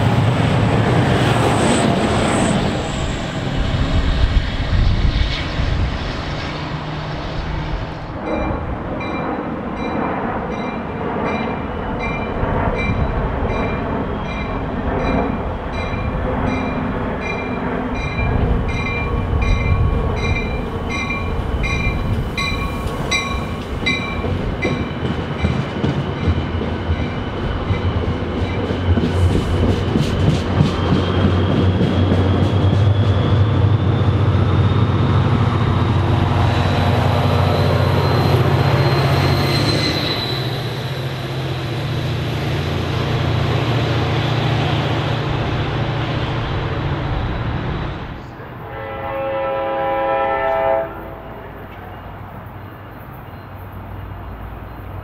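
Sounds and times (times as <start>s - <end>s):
rail car wheel clatter: 0.0s - 49.2s, 49.8s - 55.0s
train rumbling and clattering past: 0.0s - 55.0s
locomotive bell ringing: 8.2s - 28.9s.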